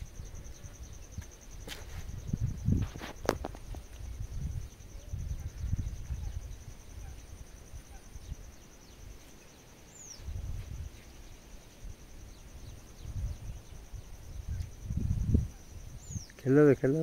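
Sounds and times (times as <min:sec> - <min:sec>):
wind rumbling on microphone: 0:00.0 - 0:09.2, 0:10.1 - 0:16.3
pulsing insect trill: 0:00.0 - 0:17.0
bird chirps: 0:16.0 - 0:16.4.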